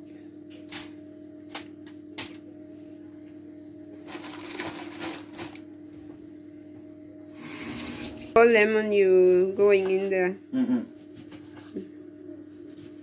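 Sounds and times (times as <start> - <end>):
aluminium foil crinkling: 4.0 - 5.7.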